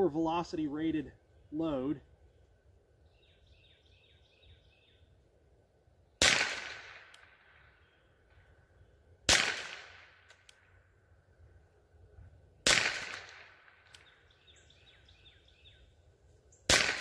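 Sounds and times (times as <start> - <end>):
rifle shots with echo: 6.2 - 7.8, 9.3 - 10.4, 12.6 - 14.1, 16.7 - 17.0.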